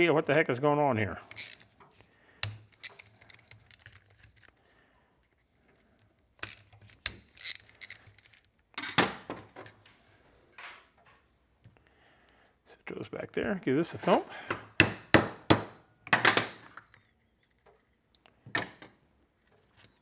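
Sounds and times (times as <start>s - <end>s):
screwdriver metal clicks and scrapes: 1.3s - 4.6s, 5.2s - 8.7s, 16.6s - 18.4s, 19.3s - 20.0s.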